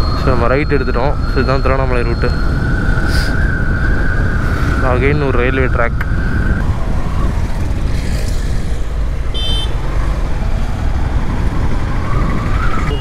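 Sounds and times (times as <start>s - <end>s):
high-pitched beep: 0.0s - 2.6s
wind: 0.0s - 13.0s.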